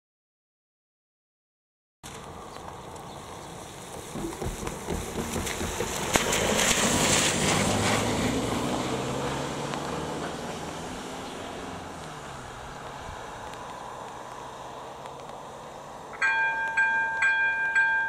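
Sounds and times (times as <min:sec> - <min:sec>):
car passing on wet road: 0:02.0 - 0:16.3
sharp knock: 0:04.0 - 0:06.4.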